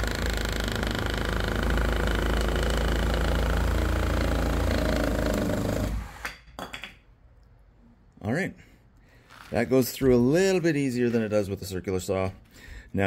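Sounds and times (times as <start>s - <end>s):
reciprocating saw cutting wood: 0.0s - 6.3s.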